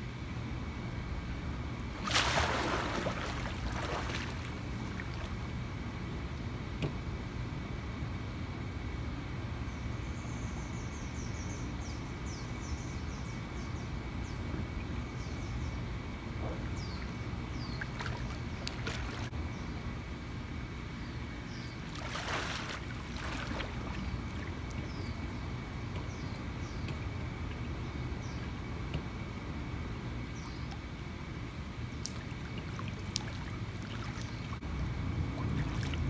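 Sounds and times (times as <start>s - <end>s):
water splashing in pool: 2.0s - 5.5s, 17.8s - 19.3s, 21.9s - 24.9s, 31.9s - 34.6s, 35.2s - 36.0s
birds chirping: 9.7s - 19.8s, 21.0s - 29.0s, 30.2s - 30.9s, 32.2s - 34.6s.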